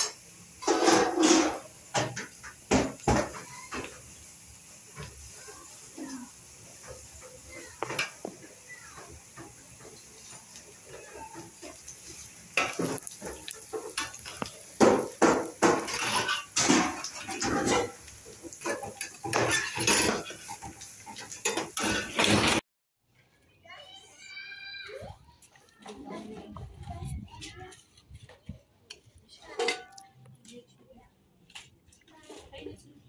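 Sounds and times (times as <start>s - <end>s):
spatula scraping metal pan: 0.0s - 2.4s, 9.9s - 22.6s.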